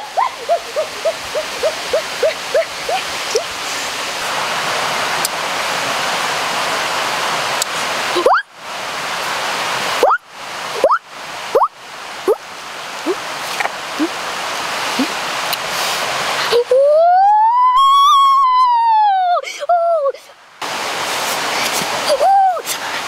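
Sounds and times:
watery hiss: 0.0 - 4.8, 13.0 - 16.7, 20.6 - 23.0
water bubbling and plopping: 8.2 - 8.5, 10.0 - 10.2, 10.8 - 12.4.

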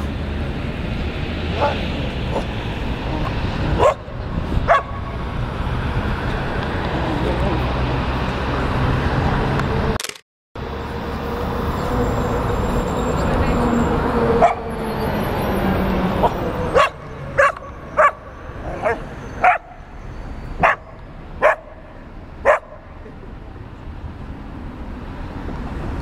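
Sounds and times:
street traffic hum: 0.0 - 26.0
dogs barking: 1.5 - 5.1, 14.3 - 14.8, 16.2 - 19.9, 20.6 - 23.0.

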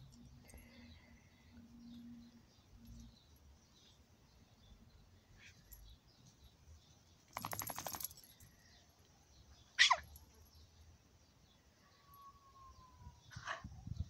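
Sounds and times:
dog yelping: 9.8 - 10.0.

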